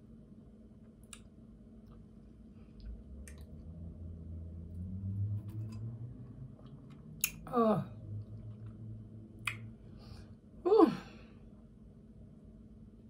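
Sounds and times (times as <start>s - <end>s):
low steady rumble: 0.0s - 13.0s
lip clicks and smacks: 0.8s - 2.1s, 2.8s - 3.5s, 6.6s - 7.5s, 9.4s - 9.7s
person humming mmm: 7.2s - 8.0s, 10.6s - 11.2s.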